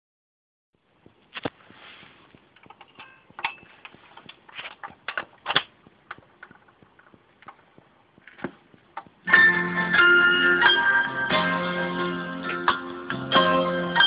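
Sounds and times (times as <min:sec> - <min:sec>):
record player clicks and knocks: 0:02.4 - 0:09.3.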